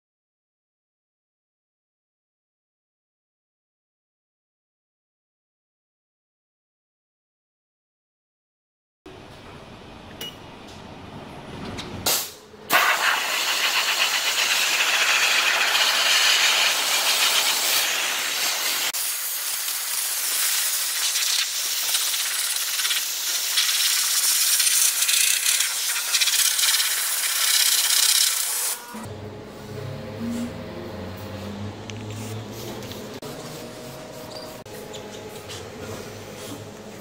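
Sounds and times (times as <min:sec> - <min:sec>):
steam cleaner hissing: 0:12.7 - 0:29.0.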